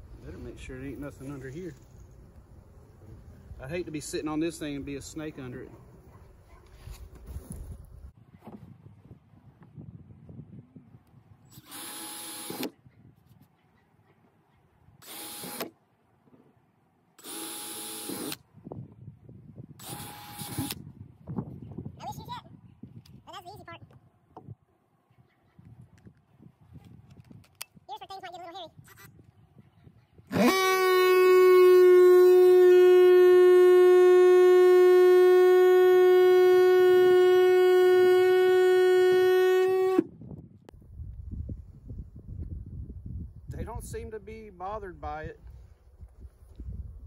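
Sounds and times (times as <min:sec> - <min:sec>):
cordless drill drilling metal: 0:11.5 - 0:12.8, 0:15.0 - 0:15.7, 0:17.2 - 0:18.4, 0:19.8 - 0:20.8, 0:30.3 - 0:31.0
oscillating multi-tool buzzing: 0:11.5 - 0:12.8, 0:15.0 - 0:15.7, 0:17.2 - 0:18.4, 0:19.8 - 0:20.8, 0:30.3 - 0:40.0.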